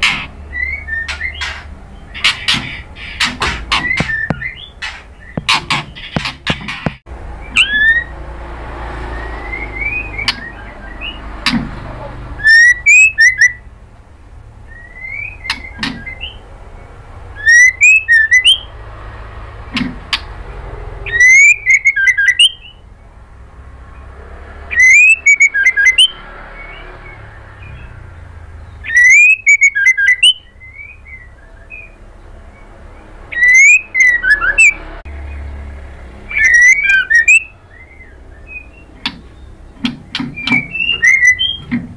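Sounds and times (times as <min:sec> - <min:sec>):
bird singing whistled phrases: 0:00.5 - 0:01.5, 0:07.4 - 0:08.2, 0:09.0 - 0:11.2, 0:12.4 - 0:13.7, 0:14.6 - 0:16.4, 0:17.4 - 0:18.7, 0:21.1 - 0:22.8, 0:24.7 - 0:28.0, 0:28.8 - 0:32.0, 0:33.3 - 0:34.8, 0:36.3 - 0:39.5, 0:40.3 - 0:41.7
soft bird whistles: 0:07.4 - 0:08.2, 0:09.0 - 0:11.2, 0:12.4 - 0:13.6, 0:14.7 - 0:16.4, 0:17.4 - 0:18.7, 0:21.0 - 0:22.8, 0:24.7 - 0:28.0, 0:28.8 - 0:32.6, 0:33.3 - 0:34.8, 0:36.3 - 0:39.5, 0:40.2 - 0:41.7.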